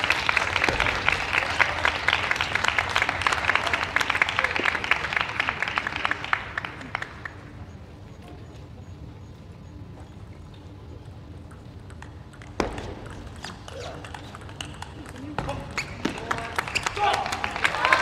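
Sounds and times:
crowd applauding: 0:00.0 - 0:07.7, 0:16.1 - 0:18.0.

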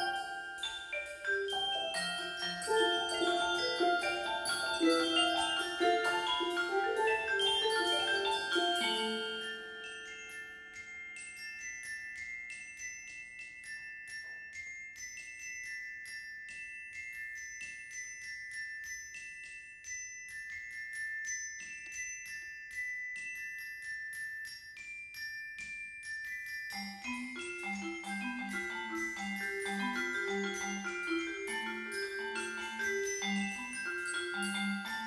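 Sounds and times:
lower mallet notes: 0:00.0 - 0:10.9
high mallet percussion: 0:00.0 - 0:35.0.

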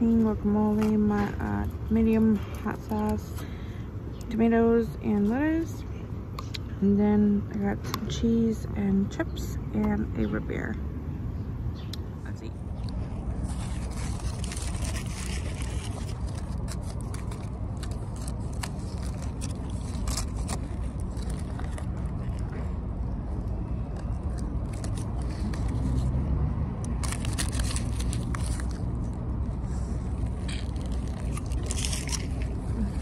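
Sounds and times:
foil and paper crinkling: 0:13.2 - 0:22.8, 0:23.9 - 0:26.1, 0:26.9 - 0:33.0.

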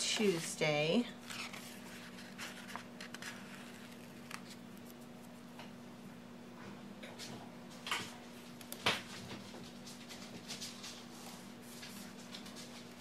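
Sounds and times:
paper rustling: 0:00.0 - 0:05.4
faint steady hum: 0:00.0 - 0:13.0.

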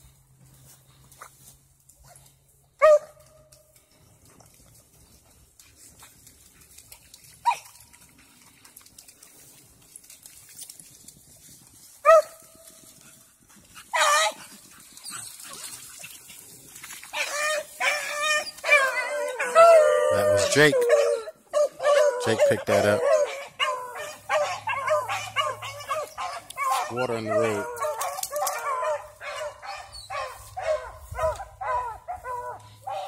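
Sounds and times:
dogs barking: 0:02.8 - 0:03.2, 0:17.2 - 0:33.0.

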